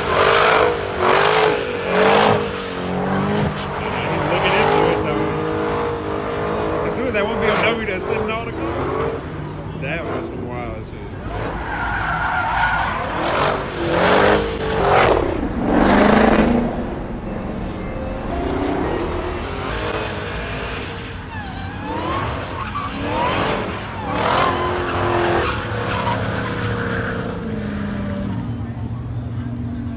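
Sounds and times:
car engine revving hard: 0.0s - 11.6s, 12.8s - 16.9s, 18.4s - 28.3s
tyres squealing: 21.2s - 27.5s.

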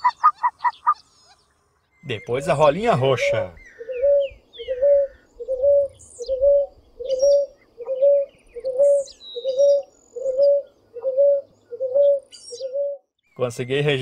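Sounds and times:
faint high bird chirps: 0.0s - 14.0s
dove cooing: 2.1s - 13.1s.

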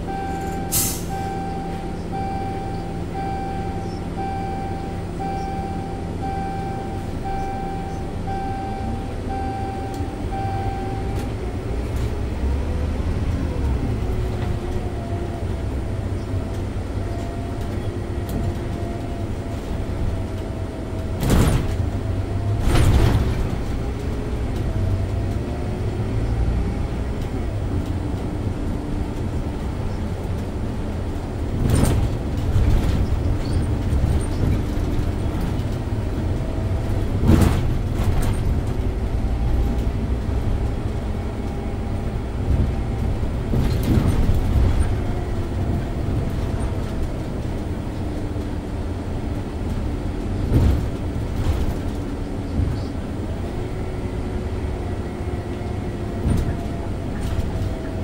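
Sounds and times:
bus engine and road rumble: 0.0s - 58.0s
bus body knocks and rattles: 13.8s - 25.4s, 27.2s - 54.5s, 55.4s - 58.0s.

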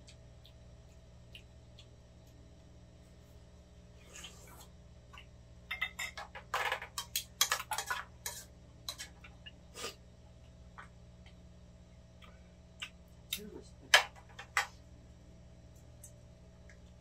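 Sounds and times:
utensils clinking on pans and bowls: 5.7s - 9.3s.

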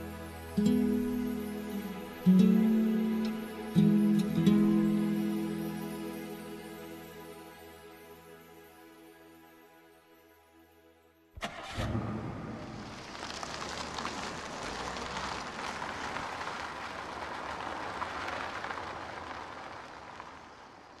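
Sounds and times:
car driving on dirt lane: 11.4s - 21.0s
car engine starting: 11.4s - 21.0s.

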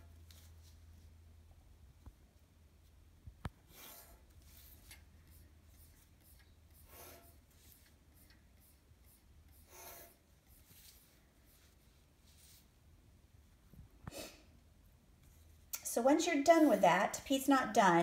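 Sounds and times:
pencil scratching on paper: 3.7s - 12.7s, 16.3s - 17.2s.

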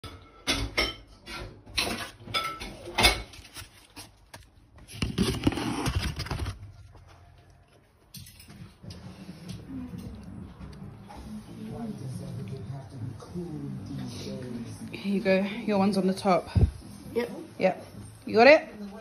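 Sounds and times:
scraping and rustling: 1.8s - 9.7s.

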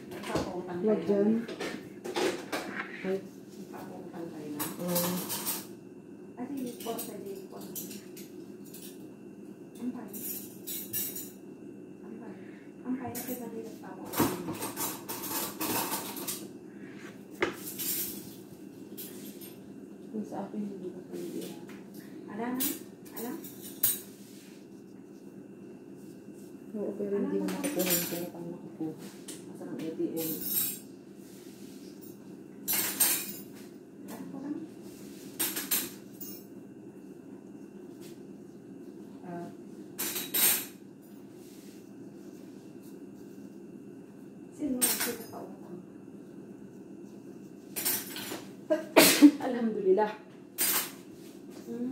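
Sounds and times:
steady low hum: 0.0s - 51.9s
metal utensils clinking: 27.6s - 28.3s.

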